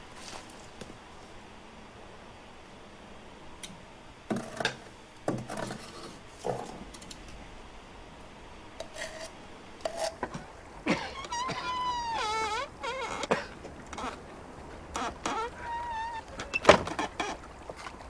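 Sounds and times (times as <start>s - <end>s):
soot scraped by hand: 8.8s - 10.2s.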